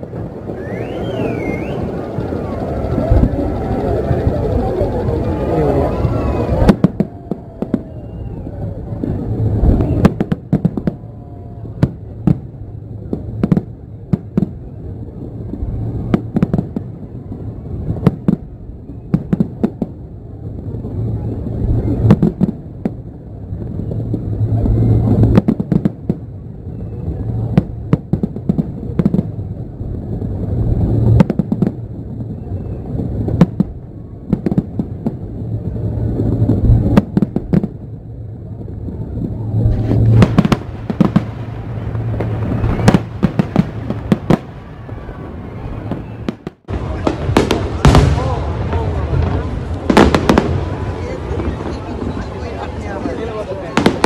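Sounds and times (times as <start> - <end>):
steady low rumble: 0.0 - 54.0.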